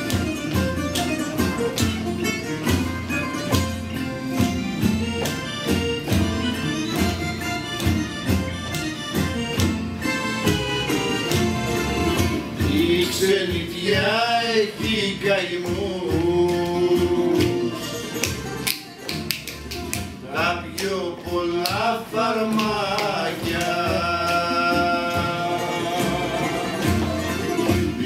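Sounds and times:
folk music on plucked strings: 0.0s - 28.0s
person singing with vibrato: 12.6s - 18.0s, 20.2s - 27.2s.

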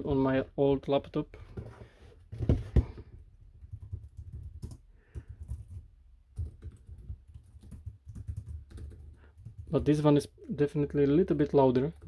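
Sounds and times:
laptop keyboard typing: 3.5s - 10.1s.

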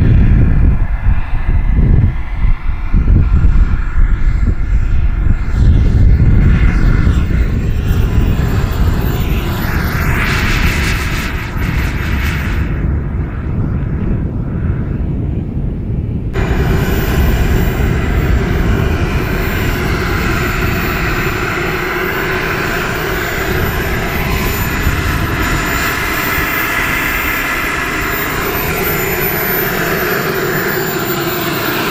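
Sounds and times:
model jet turbine running: 0.0s - 15.6s, 16.3s - 31.9s.

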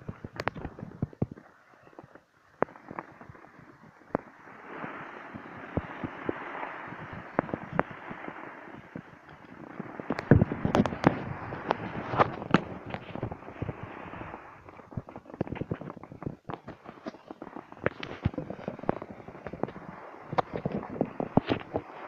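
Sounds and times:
skis scraping on hard snow: 2.6s - 22.0s.

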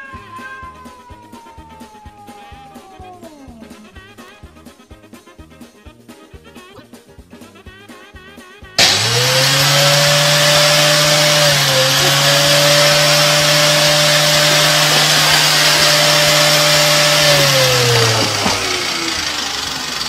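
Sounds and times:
electric motor humming: 8.8s - 20.0s.

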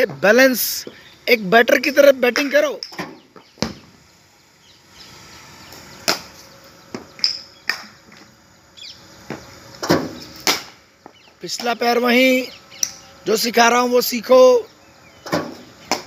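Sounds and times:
cricket bats striking balls: 2.3s - 4.0s, 6.0s - 8.4s, 9.2s - 11.9s, 15.2s - 16.0s.

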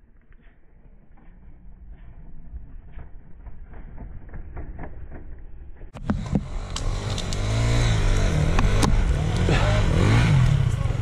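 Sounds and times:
dirt bike engine running: 1.2s - 11.0s.

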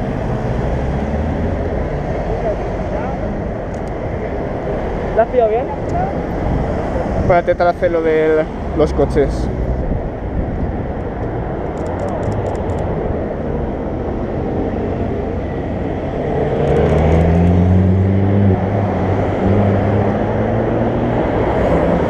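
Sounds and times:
cars driving past: 0.0s - 22.0s
vehicle engine hum: 0.0s - 22.0s.

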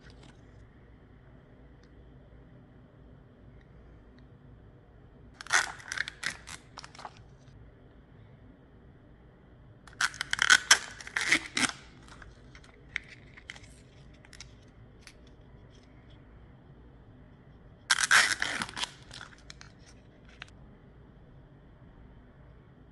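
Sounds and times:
packaging tearing and crinkling: 5.4s - 7.2s, 9.9s - 15.2s, 17.9s - 20.5s.

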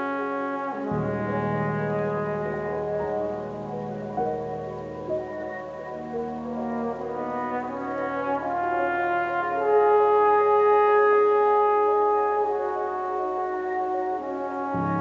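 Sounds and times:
background music held chords: 0.0s - 15.0s.

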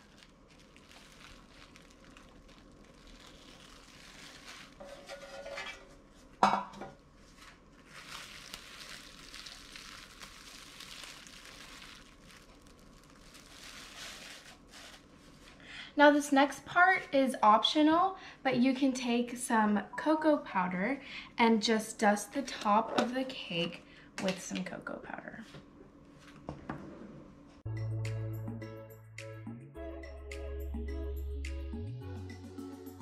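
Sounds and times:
cling wrap rustling: 0.0s - 5.6s, 7.2s - 15.6s
metal pan clattering on countertop: 4.8s - 6.9s.

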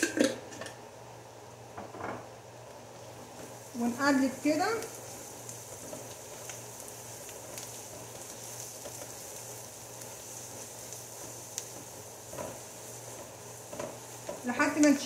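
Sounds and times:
onions sizzling in oil: 0.0s - 15.0s
range hood fan hum: 0.0s - 15.0s
spatula stirring in pan: 3.2s - 15.0s.

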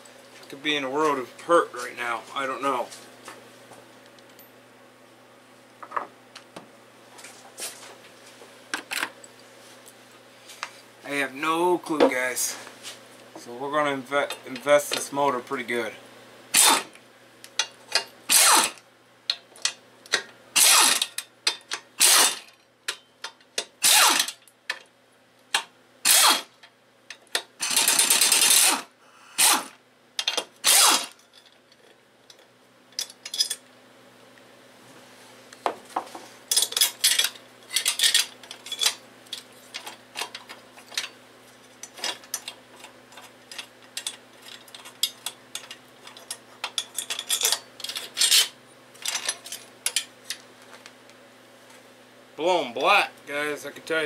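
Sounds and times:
ratchet wrench clicking: 20.6s - 21.2s, 26.1s - 26.5s.

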